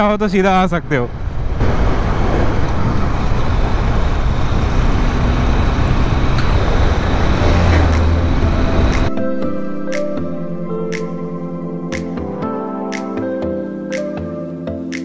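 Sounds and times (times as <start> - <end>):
wind rushing over microphone: 0.5 - 9.1
motorcycle engine: 1.1 - 9.1.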